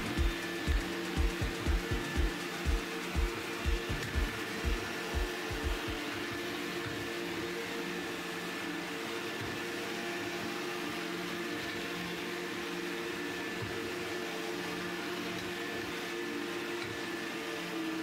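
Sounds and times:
robot vacuum motor hum: 0.0 - 12.2.

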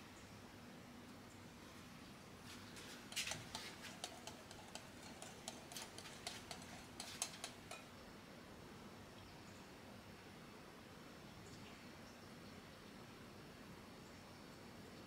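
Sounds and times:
light irregular clicks and taps: 2.5 - 7.9.

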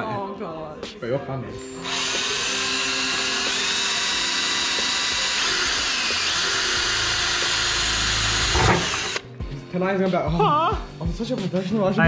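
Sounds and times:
cordless drill whining: 1.6 - 9.3.

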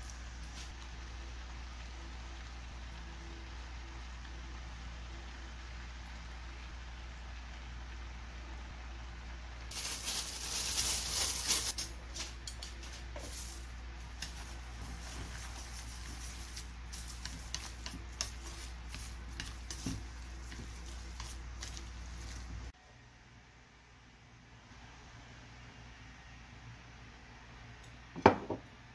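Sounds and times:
dried seaweed crackling: 9.7 - 22.7.

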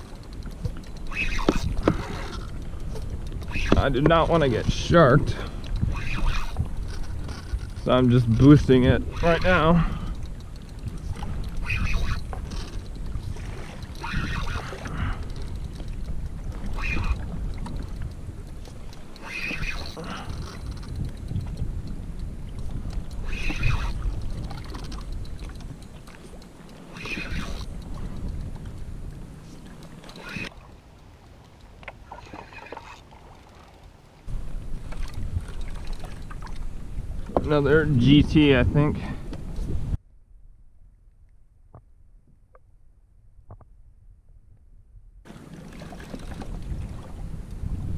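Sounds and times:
fishing reel clicking: 0.0 - 28.8, 29.8 - 30.5
wind buffeting microphone: 0.0 - 32.9, 34.3 - 40.0, 45.2 - 47.9
water washing around kayak: 0.0 - 39.8, 45.3 - 47.9.

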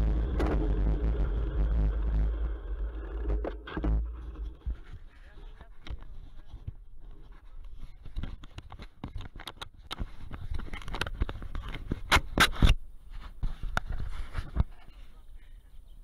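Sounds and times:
wind rumble on microphone: 0.0 - 5.1
bicycle rattling over rough ground: 0.0 - 6.1.

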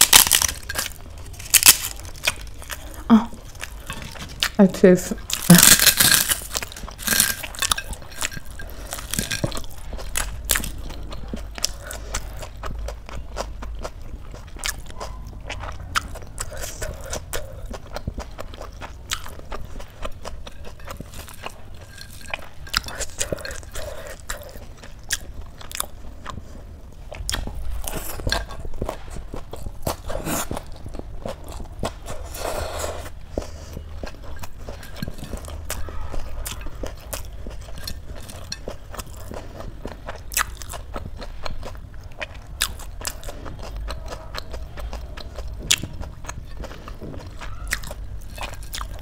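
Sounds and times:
crisp food broken by hand: 0.0 - 2.6
crisp food crunched and chewed: 0.0 - 49.0.

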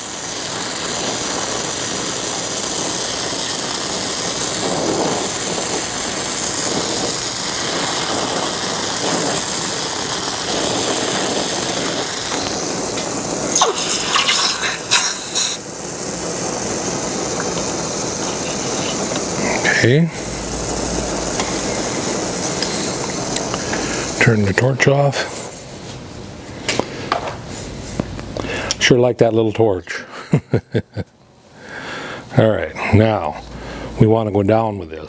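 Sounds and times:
hot metal sputtering in water: 0.0 - 25.4
torch flame hissing: 0.0 - 35.0.

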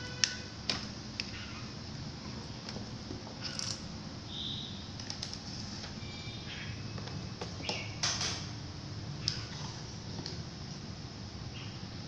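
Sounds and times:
high bird-like chirps: 4.3 - 4.9.

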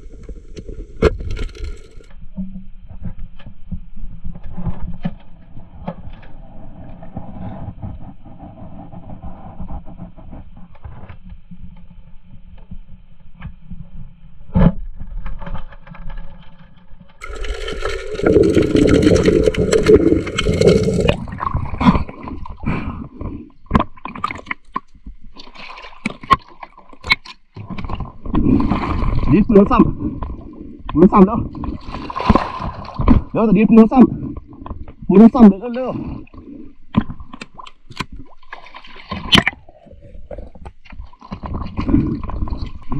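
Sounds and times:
splashes: 17.2 - 22.6, 31.6 - 33.3, 37.5 - 39.6
water gurgling underwater: 17.2 - 35.2, 35.8 - 42.9.

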